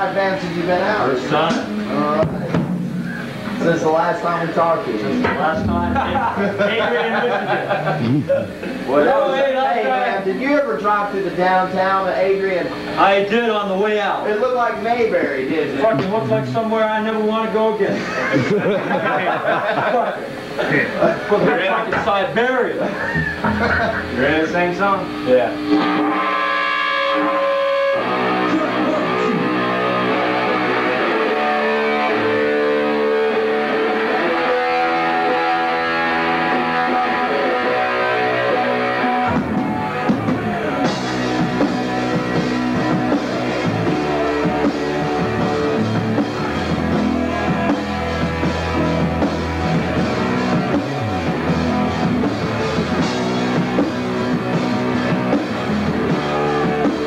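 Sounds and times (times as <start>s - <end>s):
drum kit: 0.0s - 8.9s, 23.2s - 57.0s
bass guitar: 0.0s - 9.0s, 23.1s - 57.0s
electric guitar playing: 0.0s - 9.2s, 23.4s - 57.0s.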